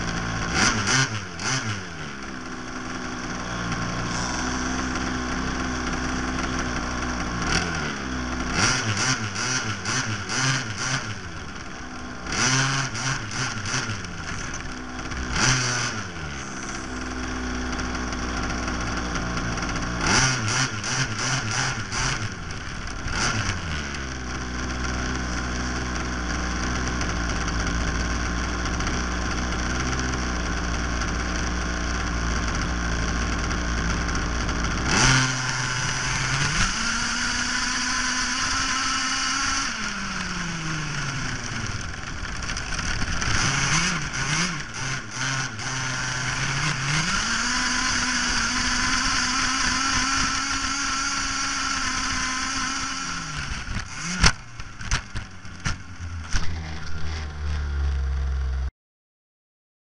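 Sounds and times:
rc car motor whine: 0.0 - 58.6.

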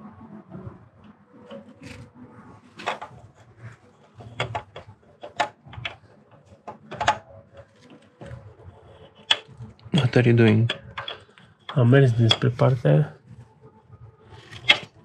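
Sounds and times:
metal parts and tools clicking: 9.1 - 12.6, 14.4 - 14.9.

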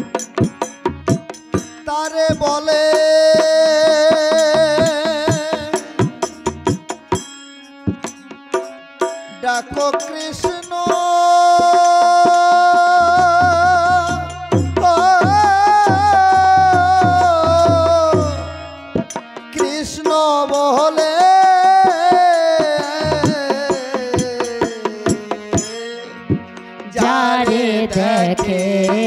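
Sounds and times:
barrel drum playing: 0.0 - 21.2, 21.8 - 29.0
man singing long notes: 1.8 - 6.4, 9.4 - 29.0.

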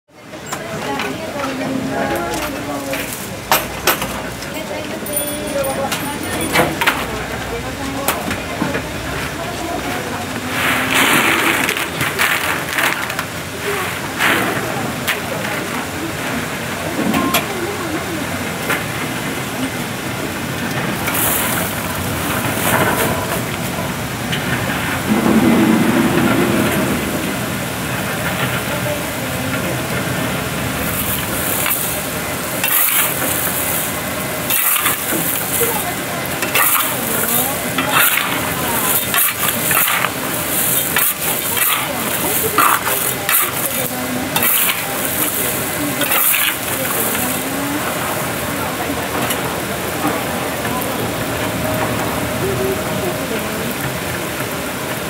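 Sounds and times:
gritty hiss of sand: 10.5 - 12.8
chestnut shells scraping and clacking: 30.9 - 47.3.

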